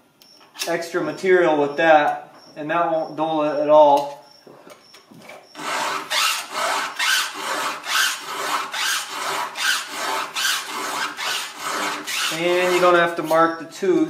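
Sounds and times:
file rasping on chainsaw chain: 5.5 - 13.4.

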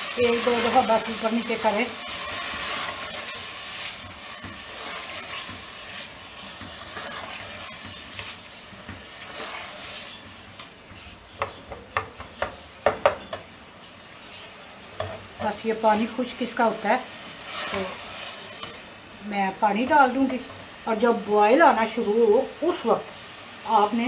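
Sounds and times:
spatula scraping metal pot: 0.0 - 8.4
food sizzling: 0.0 - 24.0.

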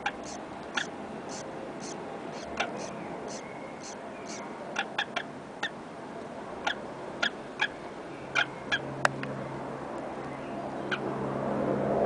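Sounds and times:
small animals squeaking: 0.0 - 5.8.

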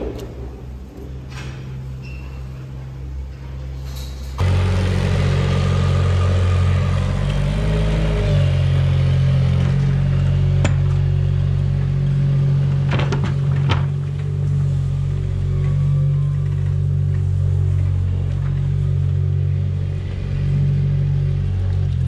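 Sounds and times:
loader engine running: 0.0 - 22.0.

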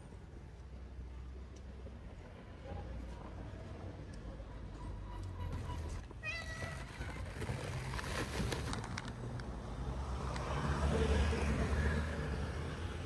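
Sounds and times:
low traffic rumble: 0.0 - 13.0
car passing: 8.2 - 13.0.

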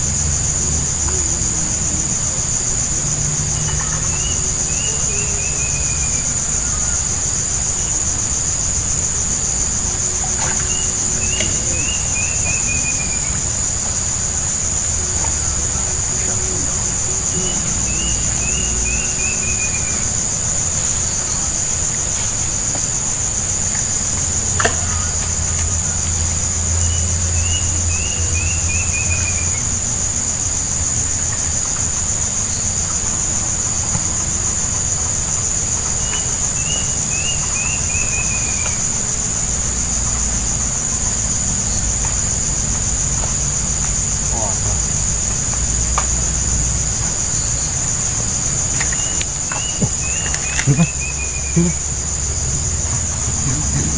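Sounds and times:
high-pitched insect drone: 0.0 - 53.9.

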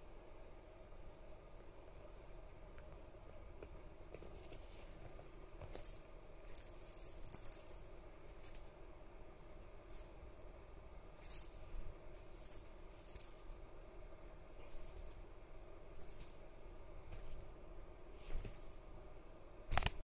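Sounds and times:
faint steady hum: 0.0 - 20.0
light jingling rattle: 5.7 - 8.7, 11.2 - 13.6, 14.6 - 15.2, 15.9 - 16.5.

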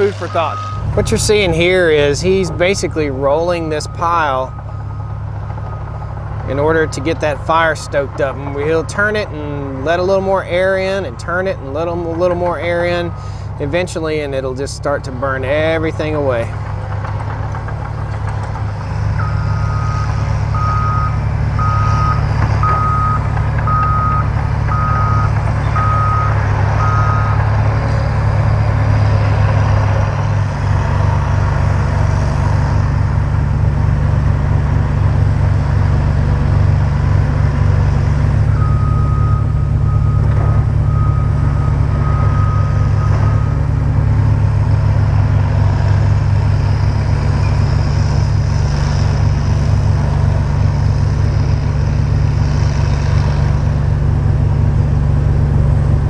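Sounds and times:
diesel engine running: 0.0 - 56.0
backup alarm beeping: 19.2 - 27.4, 38.5 - 43.7.

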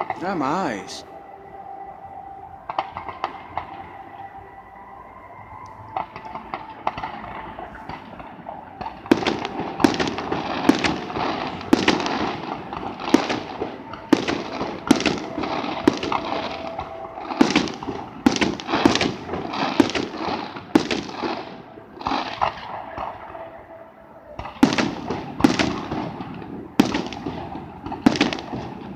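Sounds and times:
fireworks crackling: 0.0 - 1.2, 2.7 - 4.6, 5.6 - 28.9
firework shells bursting bangs: 6.0 - 23.4, 24.4 - 28.9.

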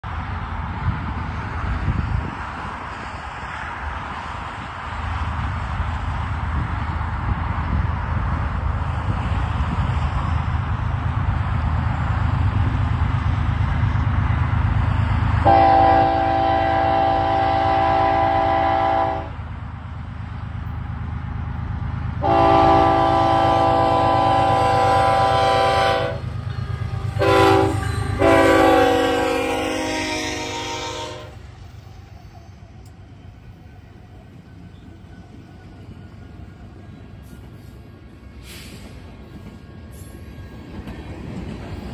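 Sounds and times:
locomotive engines rumbling: 0.0 - 41.9
locomotive air horn blasts: 15.4 - 19.4, 22.2 - 31.4.

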